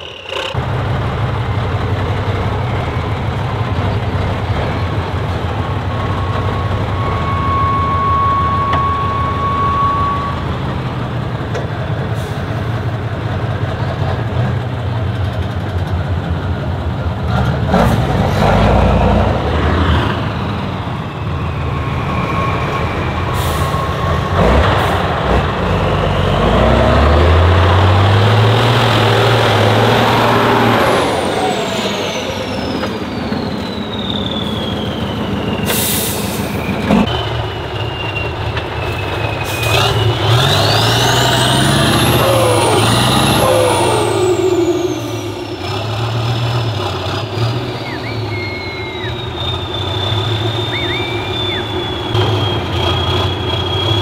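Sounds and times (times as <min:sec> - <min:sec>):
diesel truck engine revving: 0:00.0 - 0:54.0
air brake hisses: 0:35.6 - 0:36.8.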